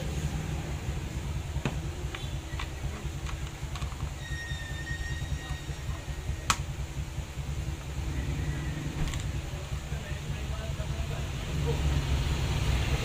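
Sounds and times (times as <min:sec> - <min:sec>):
steady low hum: 0:00.0 - 0:13.0
small plastic parts clicking: 0:02.0 - 0:04.1.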